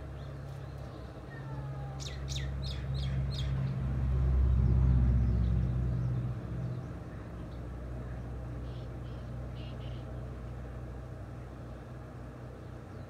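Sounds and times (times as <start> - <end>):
vehicle rumbling past: 0.0 - 13.0
bird chirping: 0.1 - 3.8, 4.6 - 10.3.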